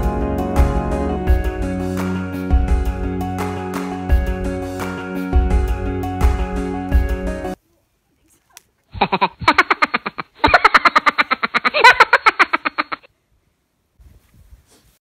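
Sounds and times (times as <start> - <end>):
woman laughing hard: 8.9 - 13.1.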